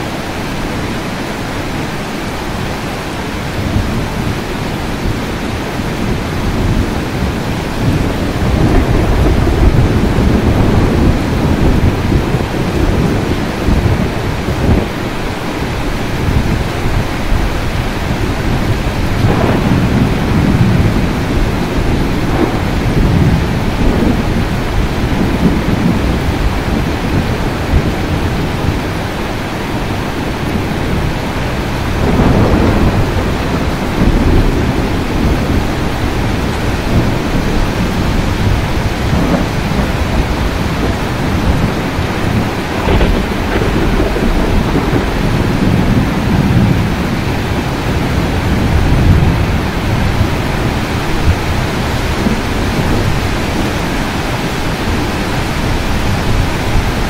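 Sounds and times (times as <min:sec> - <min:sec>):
steady rain: 0:00.0 - 0:57.0
low thunder rumbling: 0:00.1 - 0:57.0.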